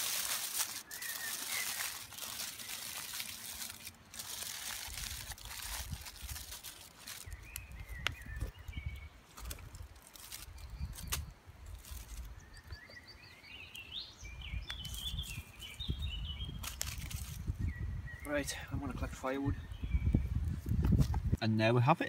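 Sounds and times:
aluminium foil crinkling: 0:00.0 - 0:08.5, 0:09.3 - 0:12.3, 0:16.6 - 0:17.5
small bird chirping: 0:00.7 - 0:03.9, 0:04.5 - 0:20.9
wind rumble on microphone: 0:04.9 - 0:06.5, 0:07.2 - 0:12.8, 0:14.2 - 0:21.4.

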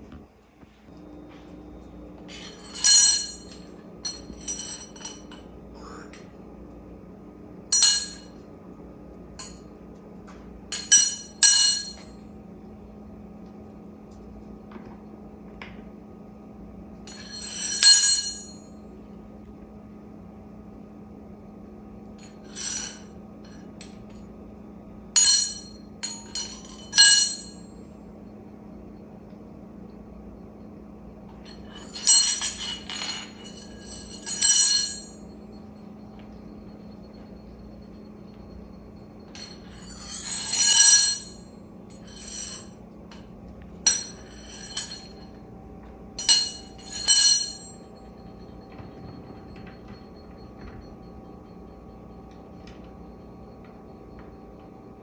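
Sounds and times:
metal spoon clinking on tile: 0:02.2 - 0:05.5, 0:07.7 - 0:08.4, 0:31.3 - 0:35.3, 0:39.3 - 0:45.4.

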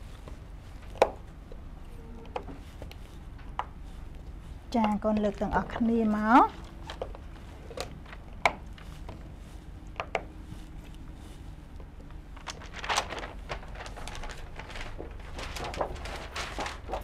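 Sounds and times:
paper rustling: 0:05.2 - 0:09.6, 0:10.6 - 0:17.0.

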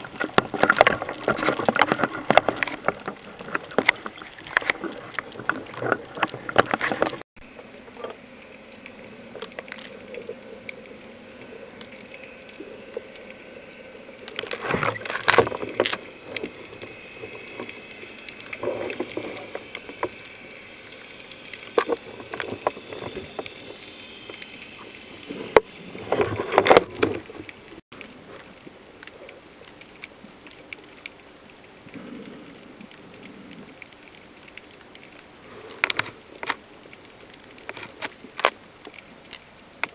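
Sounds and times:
muffled underwater hiss: 0:00.0 - 0:39.9
water bubbling and splashing: 0:00.0 - 0:39.9.

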